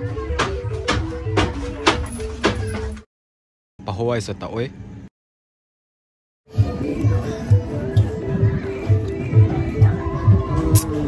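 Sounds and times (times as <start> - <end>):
background music with steady beat: 0.0 - 3.0, 6.5 - 11.0.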